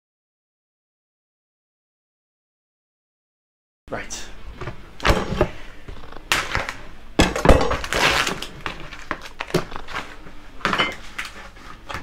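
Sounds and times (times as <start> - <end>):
food packaging crinkling and tearing: 6.0 - 6.9, 7.7 - 10.2, 11.0 - 12.0
knocks and clatter of pans: 10.7 - 11.0.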